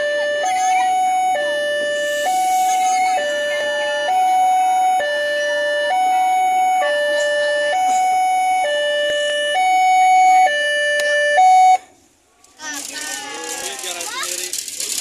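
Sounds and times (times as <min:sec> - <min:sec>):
two-tone crossing alarm: 0:00.0 - 0:11.9.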